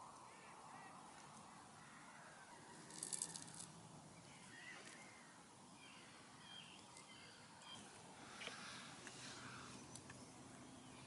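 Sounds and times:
distant bird calls: 0.0 - 11.0
high rattling crackle: 2.8 - 3.7.

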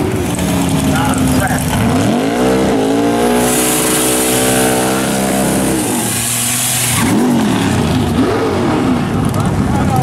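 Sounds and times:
car engine revving: 0.0 - 10.0
spinning tyres hissing: 2.5 - 8.2.

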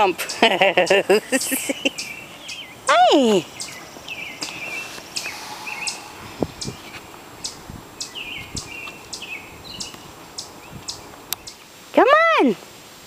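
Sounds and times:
downward-sliding bird calls: 1.4 - 11.6.

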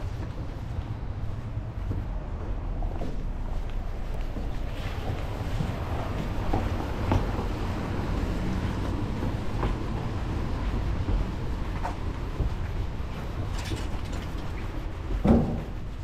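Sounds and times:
low street rumble: 0.0 - 16.0.

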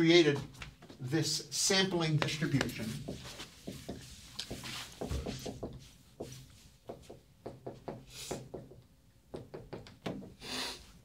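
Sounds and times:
marker writing on whiteboard: 1.9 - 8.8.

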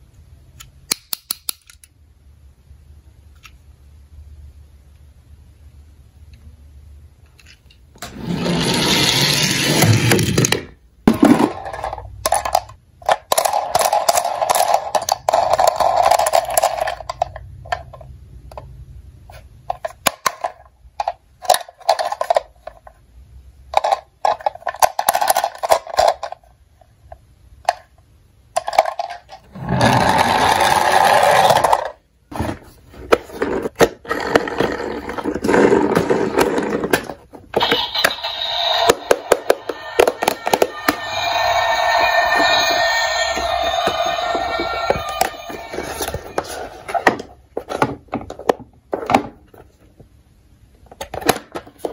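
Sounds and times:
toys scraping on cardboard: 8.0 - 10.5, 29.5 - 37.0.

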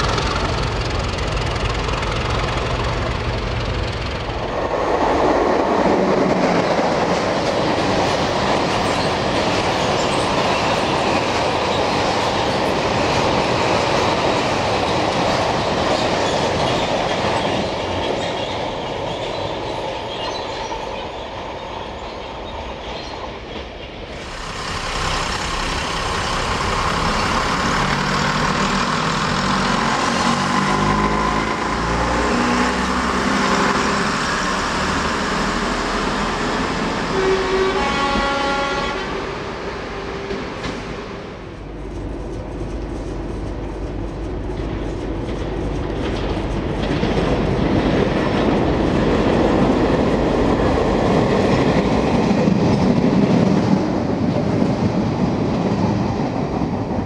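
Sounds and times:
diesel locomotive engine running: 0.0 - 18.0, 24.1 - 55.5
train passing: 0.0 - 57.0
train wheels clattering over rail joints: 44.2 - 56.8.

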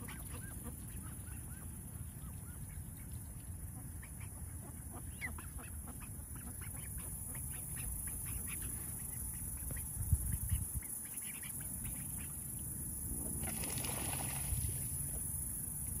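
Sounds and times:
ducks quacking: 3.7 - 8.8
steady low rumble: 11.8 - 16.0.

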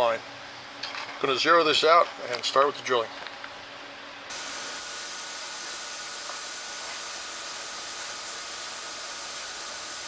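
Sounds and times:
drilling machine running: 4.3 - 10.0.

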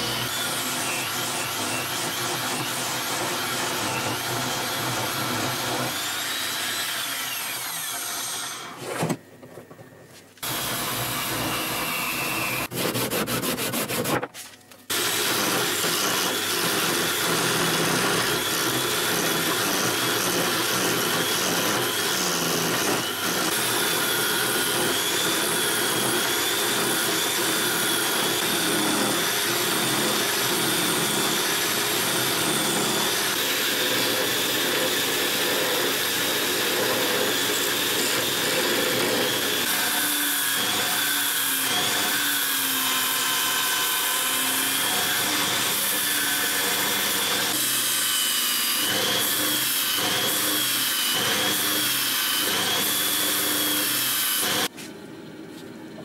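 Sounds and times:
electric drill whining: 0.0 - 8.8, 10.4 - 12.7, 14.9 - 54.7
sandpaper rubbing wood: 10.4 - 14.6
blade scraping spinning wood: 10.4 - 30.2.

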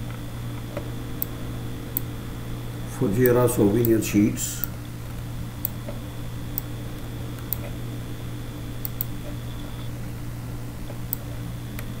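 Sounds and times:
steady low hum: 0.0 - 12.0
computer mouse clicks: 7.4 - 7.8, 8.8 - 9.7, 11.0 - 11.9.

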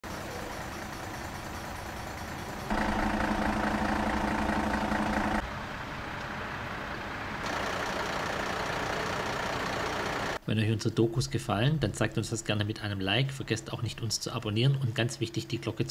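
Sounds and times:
heavy truck engines idling: 0.0 - 10.4.

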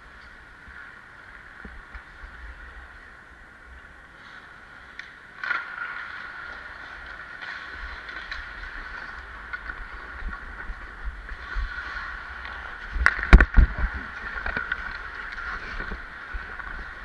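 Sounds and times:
ice skates scraping on ice: 4.1 - 17.0.

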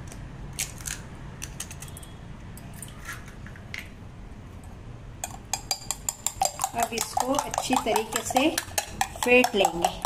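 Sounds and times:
eggshell tapping on glass: 5.2 - 10.0.

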